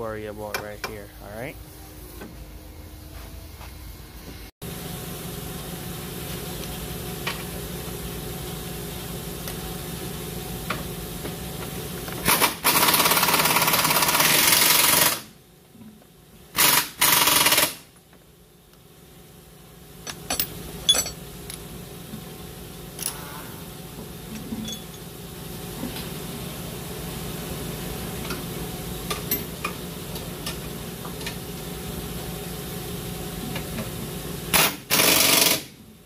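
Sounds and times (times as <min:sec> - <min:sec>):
steady machine hum: 0:00.0 - 0:36.0
air impact wrench hammering: 0:12.2 - 0:15.3, 0:16.6 - 0:17.9, 0:34.5 - 0:35.8.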